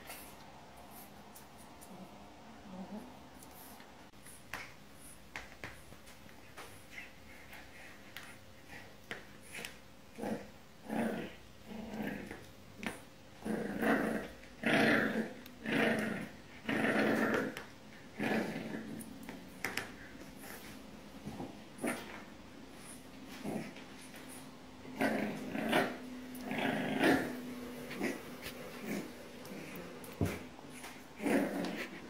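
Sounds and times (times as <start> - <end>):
puppy growling: 6.9 - 32.0.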